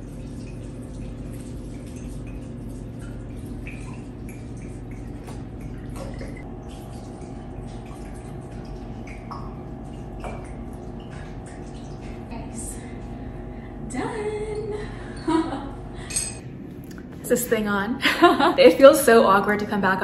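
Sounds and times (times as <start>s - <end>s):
water trickling and dripping: 0.0s - 13.3s
low room hum: 0.0s - 20.0s.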